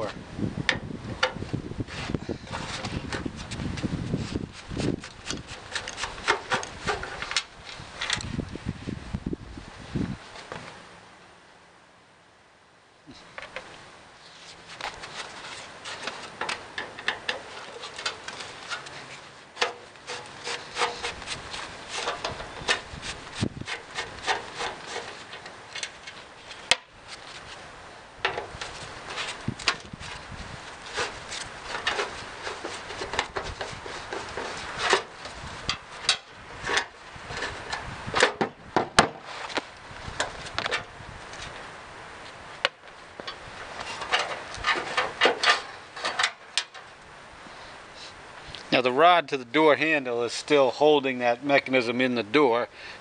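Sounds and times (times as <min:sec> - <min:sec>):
screwdriver scraping on metal: 0:04.4 - 0:07.4, 0:15.0 - 0:27.6, 0:30.8 - 0:38.3, 0:43.3 - 0:46.9
small metal clicks and knocks: 0:23.7 - 0:26.9, 0:42.6 - 0:46.9.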